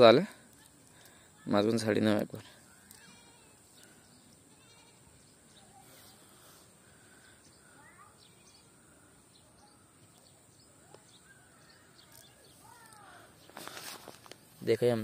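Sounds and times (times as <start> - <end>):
steady high hiss: 0.0 - 15.0
bird chirps: 2.6 - 13.8.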